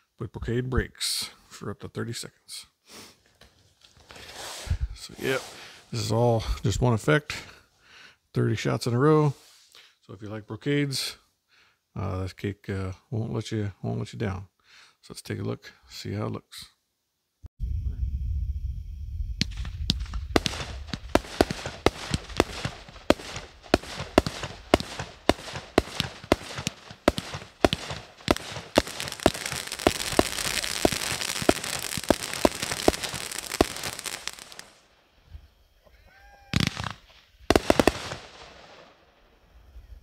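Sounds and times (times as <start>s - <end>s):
firework crackling rush: 5.0s - 6.1s, 19.4s - 34.9s, 36.6s - 38.9s
firework bangs: 19.4s - 34.8s, 36.5s - 39.0s.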